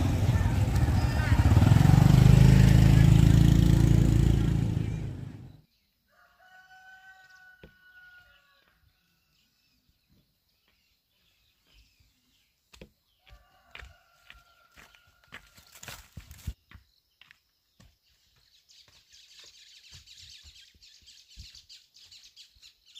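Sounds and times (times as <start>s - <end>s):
loud low engine rumble: 0.0s - 5.6s
rooster crowing: 6.1s - 8.7s, 13.2s - 15.7s.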